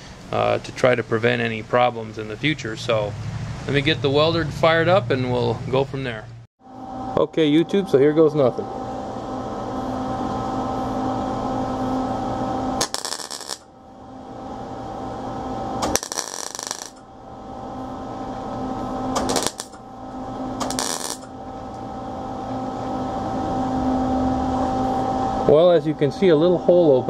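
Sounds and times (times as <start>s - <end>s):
welder hum: 6.6s - 27.0s
welding arc crackle: 12.8s - 13.7s, 15.8s - 17.0s, 19.2s - 19.8s, 20.6s - 21.3s.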